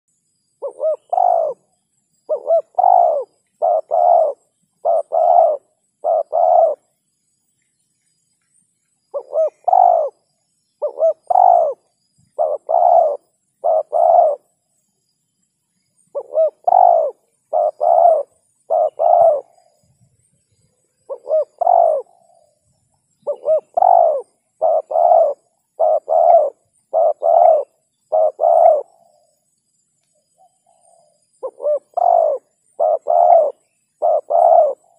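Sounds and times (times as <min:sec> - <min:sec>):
dove cooing: 0:00.6 - 0:06.9, 0:09.1 - 0:10.2, 0:10.8 - 0:14.6, 0:16.1 - 0:19.8, 0:21.0 - 0:22.5, 0:23.2 - 0:29.3, 0:30.5 - 0:34.9.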